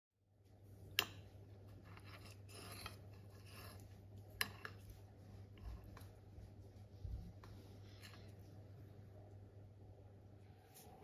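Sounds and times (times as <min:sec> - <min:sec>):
low steady hum: 0:00.2 - 0:11.0
cutlery scraping on plate: 0:01.7 - 0:04.9.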